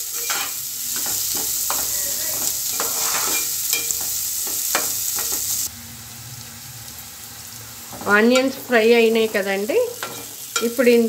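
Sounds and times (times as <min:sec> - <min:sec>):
metal spoon scraping pan: 0:00.0 - 0:05.5, 0:07.9 - 0:10.9
onions sizzling in oil: 0:00.0 - 0:11.0.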